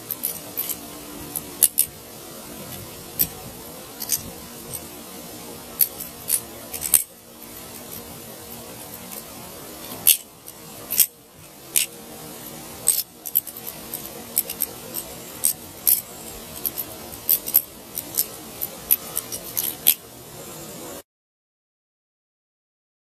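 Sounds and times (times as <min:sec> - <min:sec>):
butterfly knife clacking: 0:09.9 - 0:11.1.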